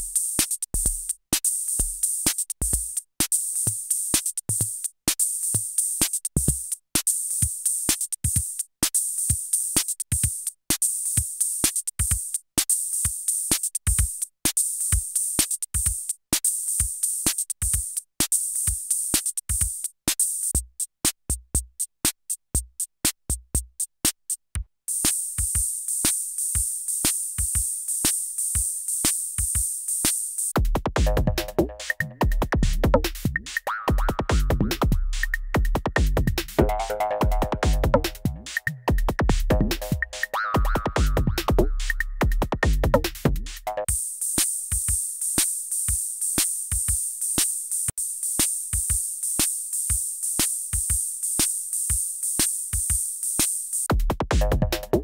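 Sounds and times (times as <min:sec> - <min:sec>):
drum machine beat: 0:00.0 - 0:55.0
hi-hat: 0:00.0 - 0:55.0
deep bass and pitched notes: 0:31.0 - 0:33.1, 0:33.9 - 0:43.8, 0:54.3 - 0:55.0.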